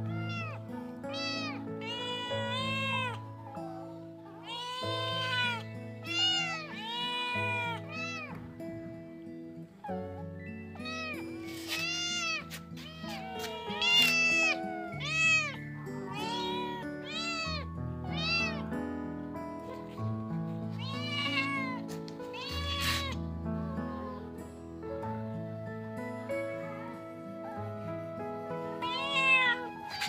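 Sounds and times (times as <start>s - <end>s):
kittens meowing: 0.0s - 8.5s, 10.7s - 18.8s, 20.7s - 24.4s, 28.6s - 30.0s.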